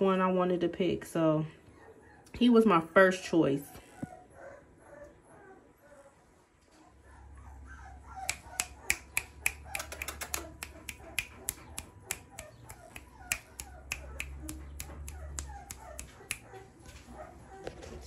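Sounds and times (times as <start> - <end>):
finger snapping clicks: 8.3 - 16.5.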